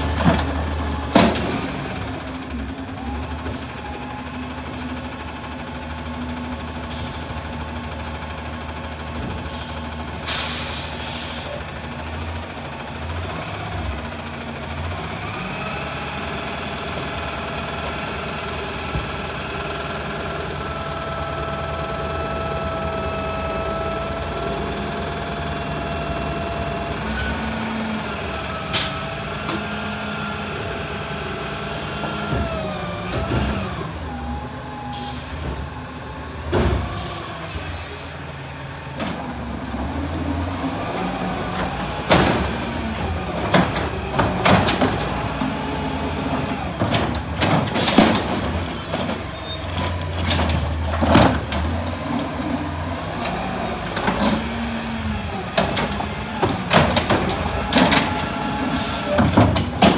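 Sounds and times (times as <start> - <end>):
carts banging against hopper: 0.0 - 2.0, 41.1 - 52.2, 53.2 - 59.9
garbage truck engine and hydraulics: 0.0 - 59.9.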